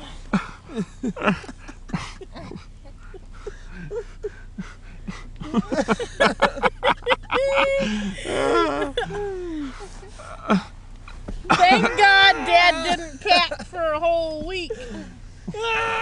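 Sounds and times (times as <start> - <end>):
people giggling and squealing: 5.4 - 10.2
bedding and tent fabric rustling: 8.5 - 15.5.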